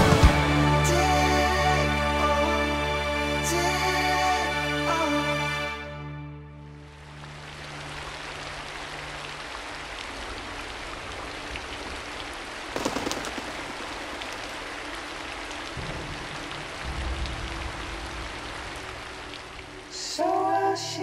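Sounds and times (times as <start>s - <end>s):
steady rain falling: 6.7s - 21.0s
crackling burst: 12.8s - 16.7s.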